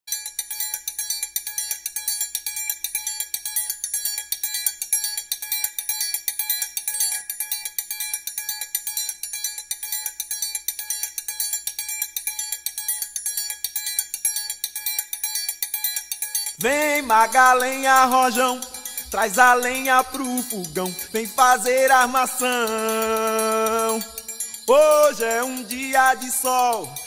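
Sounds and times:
struck metal bells ringing: 16.0 - 27.0.

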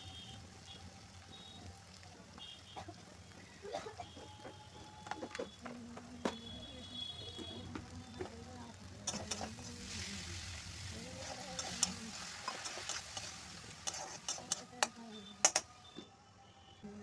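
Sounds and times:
oil sizzling: 0.0 - 16.0
metal spatula scraping pan: 9.0 - 10.1, 11.0 - 15.7.

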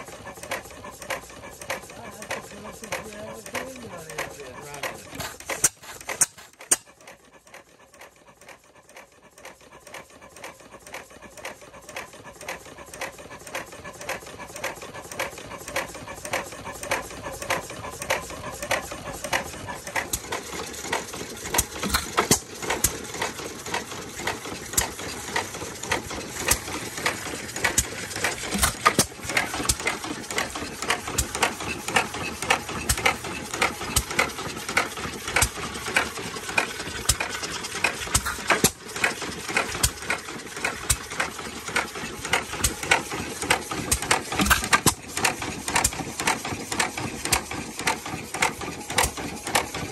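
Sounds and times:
engine clattering: 0.0 - 49.9.

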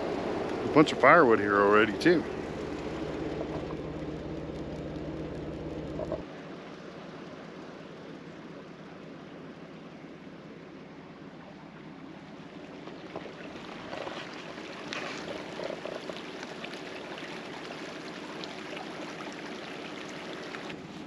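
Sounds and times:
creek trickling over gravel: 12.7 - 21.0.

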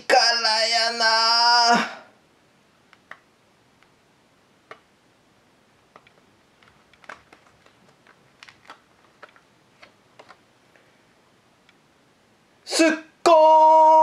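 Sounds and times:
book pages turning: 5.9 - 10.4.

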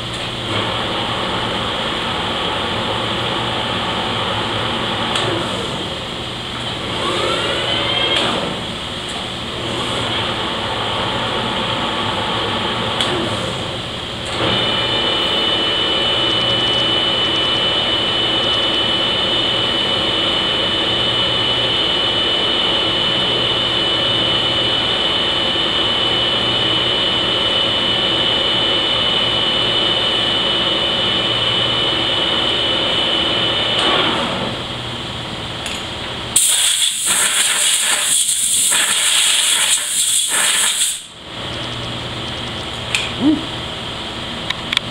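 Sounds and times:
lathe high whine: 0.0 - 42.9
air blow gun hissing: 36.4 - 41.1.

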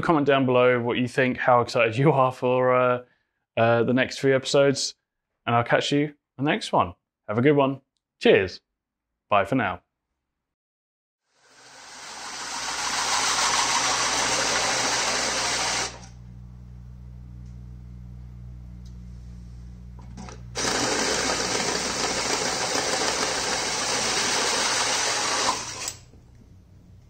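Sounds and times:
power tool whirring: 11.4 - 16.2, 20.2 - 26.2
low hum: 16.1 - 20.6, 25.8 - 27.0.

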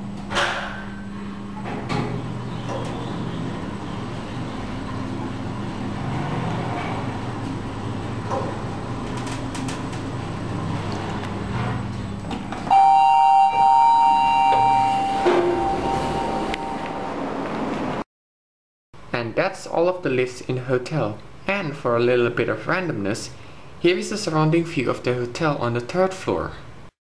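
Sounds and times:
elevator humming: 0.0 - 18.0
two-pitch elevator chime: 12.7 - 17.5.

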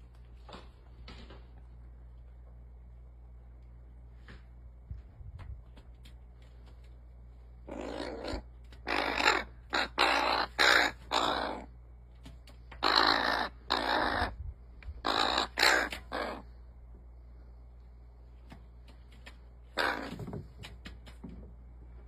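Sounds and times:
crow cawing: 7.7 - 11.7, 12.8 - 14.3, 15.0 - 16.5, 19.8 - 20.2.

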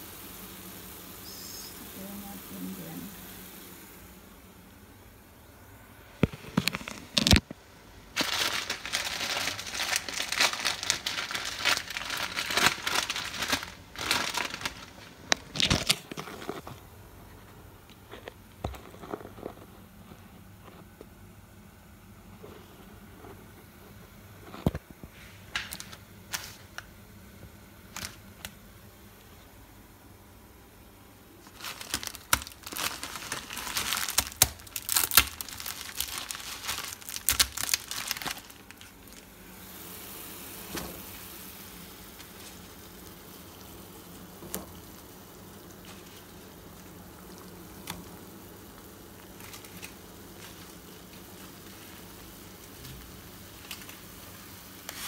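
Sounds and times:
pot of water hissing: 0.0 - 7.4, 31.3 - 55.0
plastic packet crinkling and tearing: 6.2 - 7.5, 8.1 - 16.6, 27.9 - 28.4, 31.4 - 39.3, 42.0 - 55.0.

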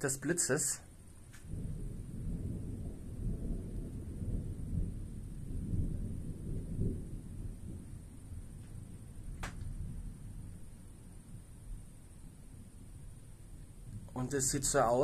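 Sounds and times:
rolling thunder: 1.3 - 15.0.

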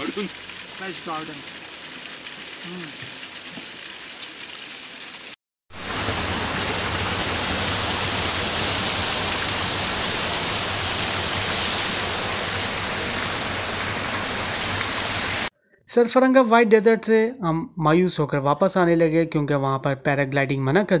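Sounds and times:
waterfall rushing over rocks: 5.8 - 15.5.

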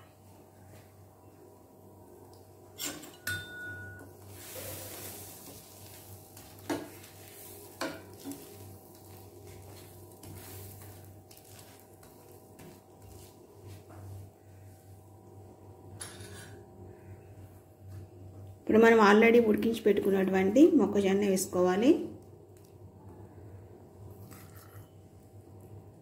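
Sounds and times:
faint sizzling: 4.0 - 16.5.

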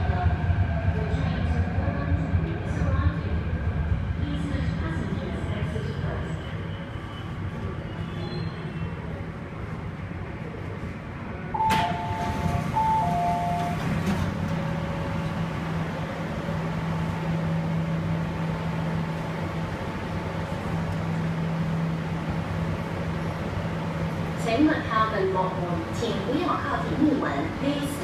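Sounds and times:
train low hum: 0.0 - 28.0
two-note door chime: 11.6 - 13.8
train doors sliding open: 11.6 - 17.9.

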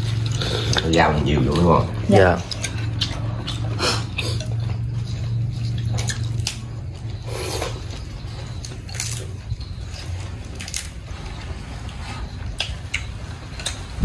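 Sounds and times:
steady low hum: 0.0 - 14.0
utensils clinking against bowls: 0.0 - 14.0.

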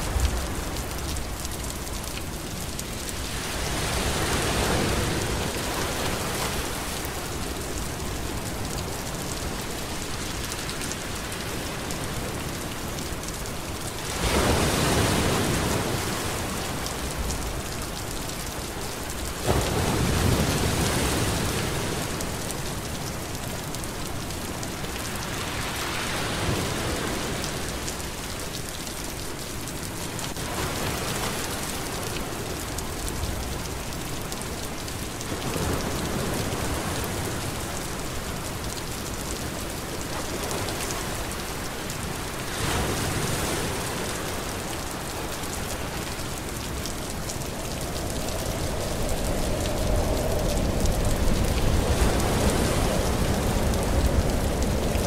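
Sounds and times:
waves washing: 0.0 - 12.5, 14.0 - 22.8, 35.2 - 55.0
rain hissing onto sea: 0.0 - 55.0.

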